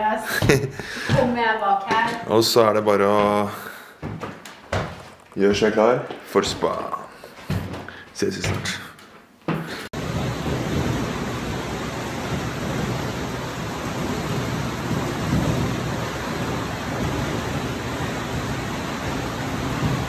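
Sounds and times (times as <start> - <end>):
rushing water: 9.9 - 20.0.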